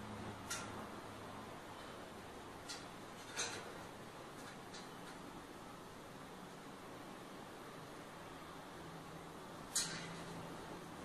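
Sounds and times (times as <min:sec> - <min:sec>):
low steady hiss: 0:00.0 - 0:11.0
dog claws clicking on metal ladder: 0:02.6 - 0:03.8, 0:09.7 - 0:10.4.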